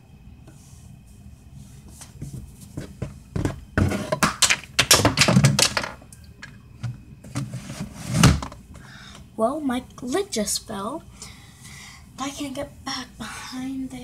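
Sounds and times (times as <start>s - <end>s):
plastic objects knocking and clattering: 2.8s - 8.6s.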